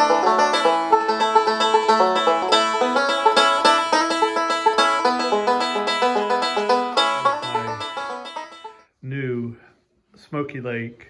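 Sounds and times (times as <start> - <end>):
rapid banjo picking: 0.0 - 8.8.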